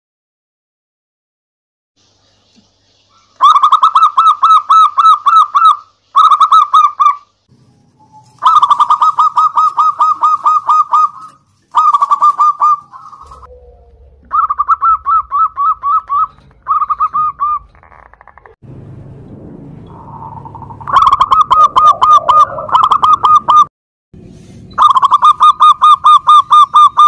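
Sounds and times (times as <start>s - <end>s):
doves cooing: 8.0s - 18.6s, 19.9s - 23.6s, 24.8s - 27.0s.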